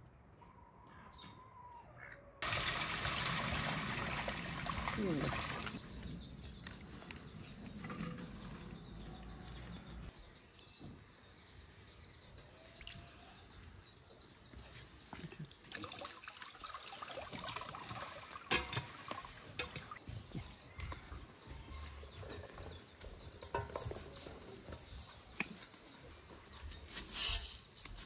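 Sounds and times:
water sloshing in metal basin: 2.4 - 5.8, 15.7 - 20.0
water trickling and dripping: 2.4 - 5.8, 15.4 - 20.1.

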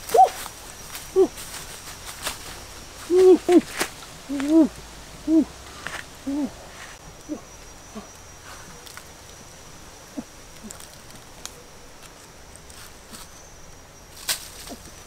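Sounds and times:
clicks and rustles in leaf litter: 0.0 - 4.8, 8.4 - 9.5, 10.2 - 13.5, 14.1 - 15.0.

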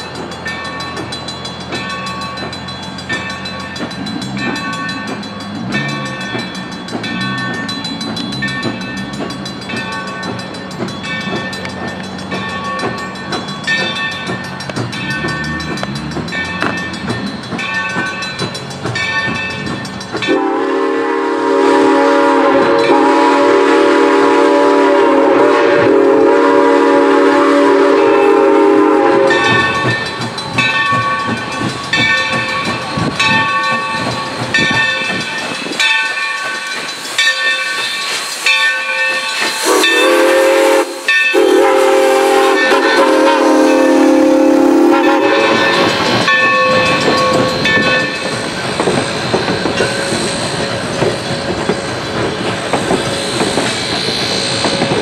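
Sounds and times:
railroad crossing bell ringing: 0.0 - 55.0
steam whistle blast: 20.3 - 29.8, 39.6 - 46.0.

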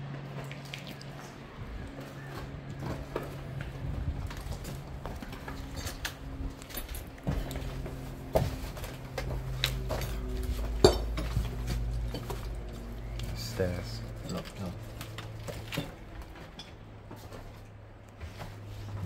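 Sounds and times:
footsteps crunching over rubble: 1.0 - 19.0
clinks and knocks: 9.2 - 12.8.

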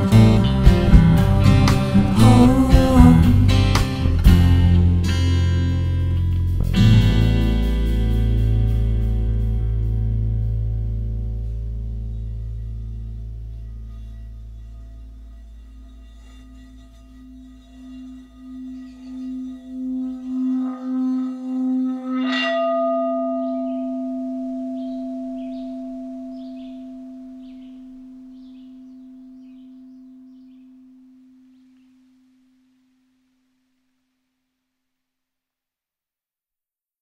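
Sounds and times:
singing bowl ringing: 12.0 - 33.2.

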